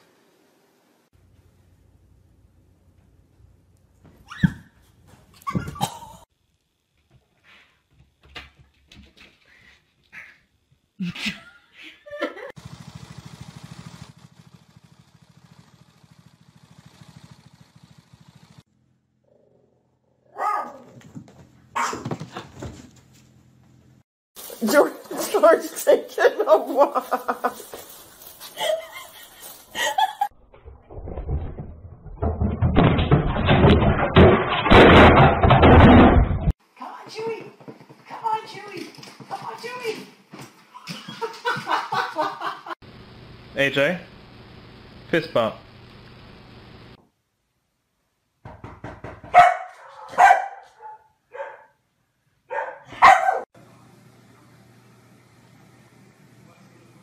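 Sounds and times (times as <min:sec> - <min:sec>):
dog barking: 0:20.3 - 0:21.0, 0:21.7 - 0:22.1, 0:49.3 - 0:51.8, 0:52.5 - 0:53.5
loud knocks and bangs: 0:31.2 - 0:36.5, 0:48.4 - 0:49.4.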